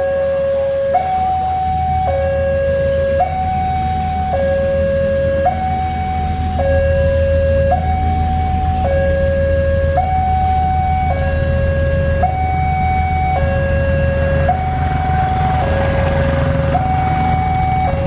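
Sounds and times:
two-tone warning alarm: 0:00.0 - 0:18.0
diesel train idling: 0:02.7 - 0:18.0.

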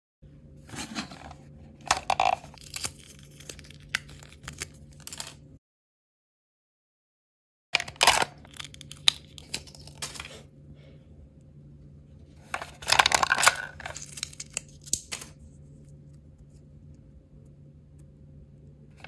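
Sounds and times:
plastic wrapper tearing and crinkling: 0:02.1 - 0:05.4, 0:07.8 - 0:10.4, 0:12.9 - 0:15.4.

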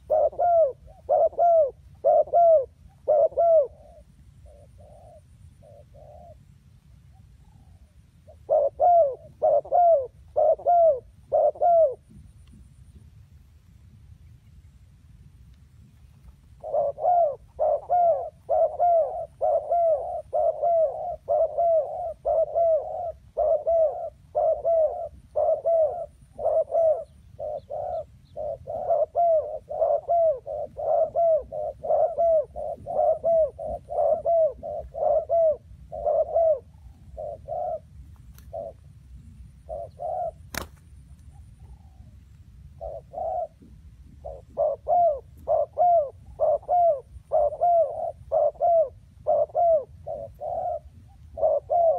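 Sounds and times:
doves cooing: 0:00.0 - 0:13.0, 0:15.8 - 0:51.9.

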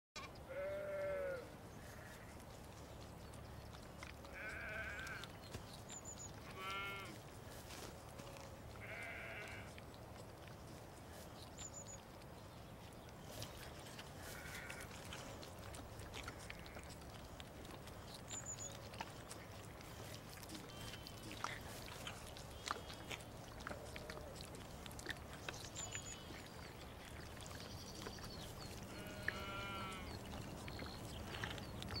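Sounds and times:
lamb bleating: 0:00.5 - 0:02.3, 0:04.2 - 0:05.3, 0:06.5 - 0:07.2, 0:08.2 - 0:09.7, 0:14.2 - 0:15.1, 0:16.2 - 0:17.0, 0:28.9 - 0:30.2.

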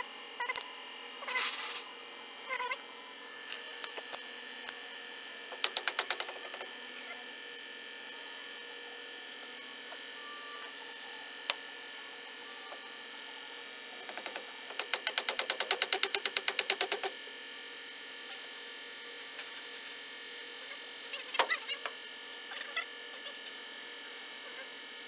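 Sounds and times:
electrical hum: 0:00.0 - 0:25.0
fast regular tapping: 0:05.6 - 0:06.6, 0:14.1 - 0:17.1.

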